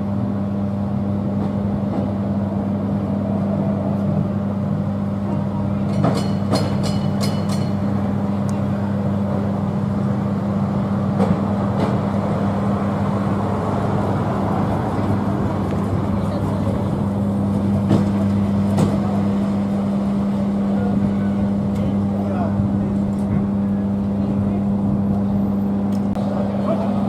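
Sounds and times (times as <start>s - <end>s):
low engine hum: 0.0s - 27.0s.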